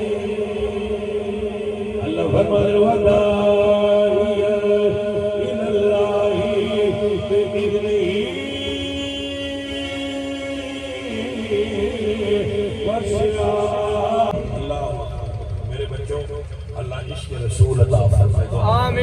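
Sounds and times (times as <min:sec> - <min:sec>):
men chanting: 0:00.0 - 0:14.4.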